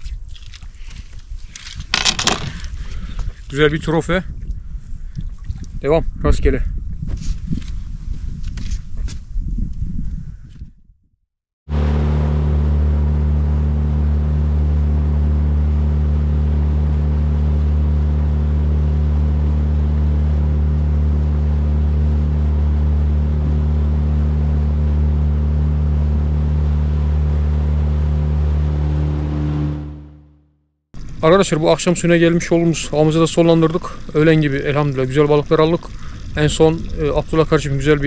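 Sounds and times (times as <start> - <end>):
water noise: 0.0 - 6.1, 11.7 - 30.2, 31.0 - 38.0
wind noise: 0.0 - 11.1, 35.8 - 38.0
outboard motor droning: 11.7 - 30.4, 31.0 - 38.0.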